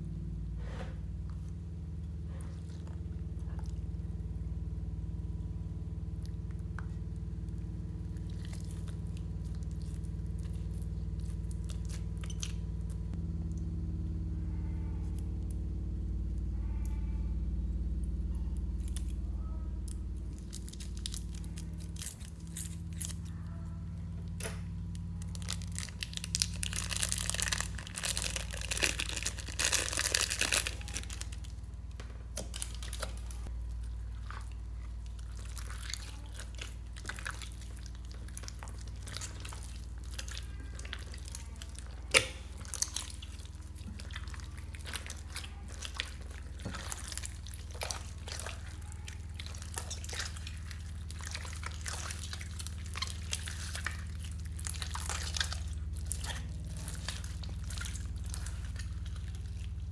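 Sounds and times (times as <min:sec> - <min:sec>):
low steady hum: 0:00.0 - 0:59.9
slime squelching: 0:00.0 - 0:59.9
plastic bag crinkling: 0:24.9 - 0:31.7, 0:32.4 - 0:33.5.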